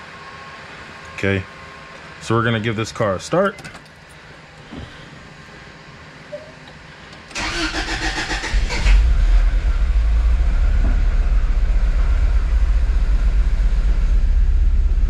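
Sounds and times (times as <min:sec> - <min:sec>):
starter motor cranking: 0:07.3 - 0:09.1
car engine idling: 0:07.3 - 0:15.0.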